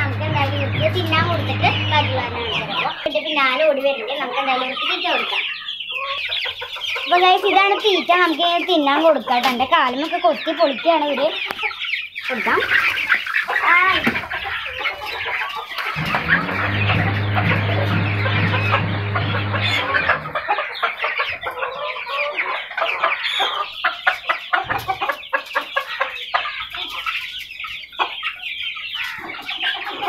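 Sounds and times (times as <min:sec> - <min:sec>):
low steady hum: 0:00.0 - 0:02.9, 0:16.0 - 0:20.4
chicks peeping and chirping: 0:00.0 - 0:30.0.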